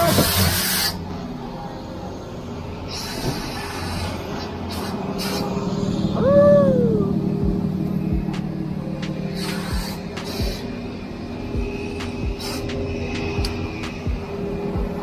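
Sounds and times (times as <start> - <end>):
loud air hiss: 0.0 - 1.0, 2.9 - 6.0, 9.3 - 10.9, 12.0 - 14.1
truck engine running: 0.0 - 15.0.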